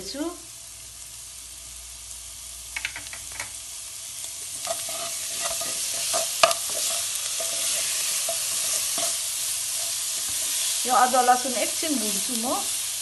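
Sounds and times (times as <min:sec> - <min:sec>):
food sizzling in a pan: 0:00.0 - 0:13.0
spatula clicking and scraping pan: 0:04.4 - 0:10.7.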